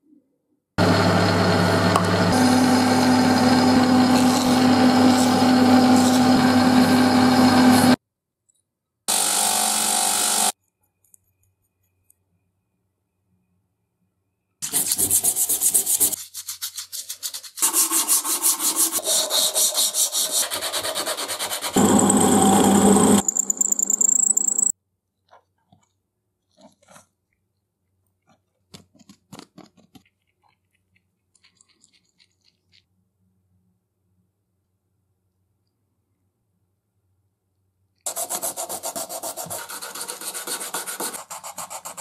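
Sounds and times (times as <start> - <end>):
drill press cutting wood: 21.8 - 24.7.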